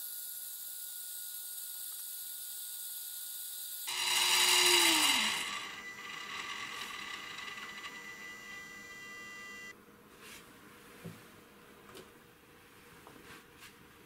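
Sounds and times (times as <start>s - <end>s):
electrical whine: 3.9s - 9.7s.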